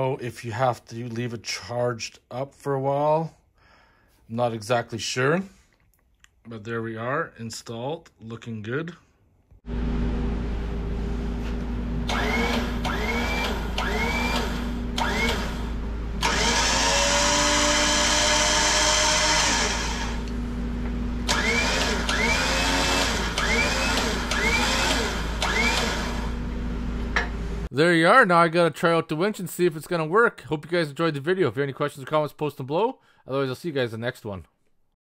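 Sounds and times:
steady low hum: 9.7s - 16.4s, 19.4s - 22.1s
electric winch motor whining: 12.0s - 20.4s, 21.2s - 26.5s.

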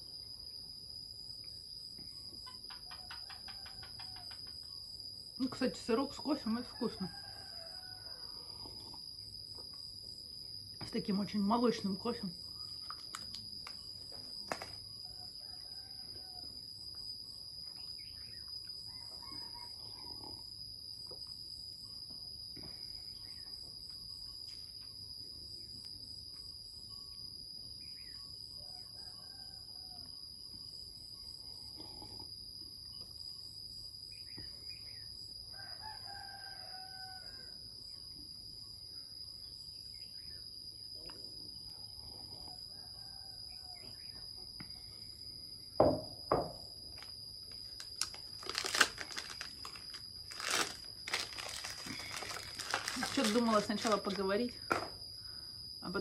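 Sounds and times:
chickens and rooster calling: 35.5s - 37.5s
sharp knocks: 45.8s - 46.6s
plastic wrapper crinkling: 47.7s - 54.2s.

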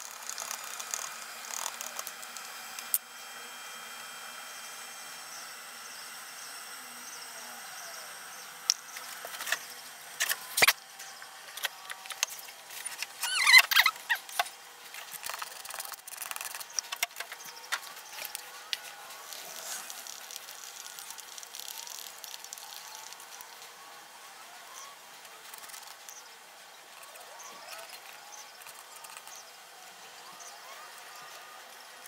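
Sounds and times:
squeaky rub: 12.8s - 14.3s.

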